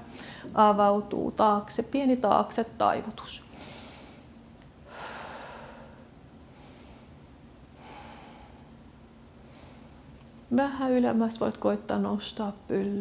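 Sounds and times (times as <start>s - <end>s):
woman breathing slowly: 0.0s - 0.6s, 3.5s - 10.2s.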